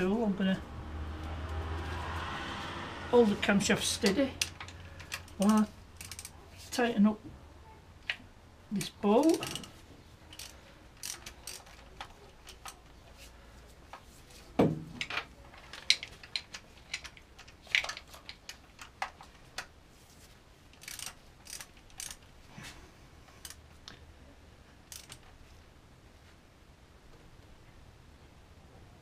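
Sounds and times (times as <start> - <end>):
metallic clicks and clinks of tools: 4.0 - 6.4, 8.8 - 12.9, 24.9 - 25.2.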